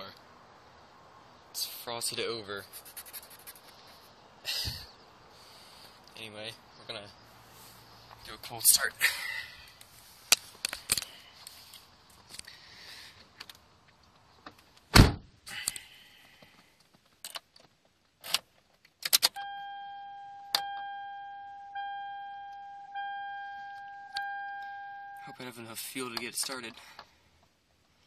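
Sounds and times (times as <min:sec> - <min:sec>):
car warning chime dinging: 0:19.4 - 0:25.6.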